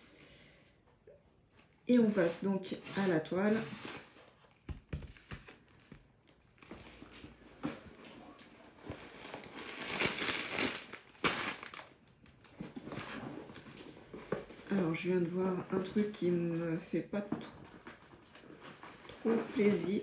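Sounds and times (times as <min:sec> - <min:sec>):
cardboard packaging rustling: 0:02.8 - 0:14.9, 0:17.6 - 0:20.0.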